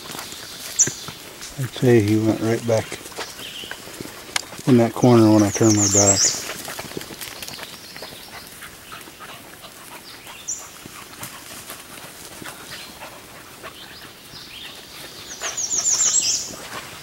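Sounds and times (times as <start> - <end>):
rustling in dry leaves: 0.0 - 17.0.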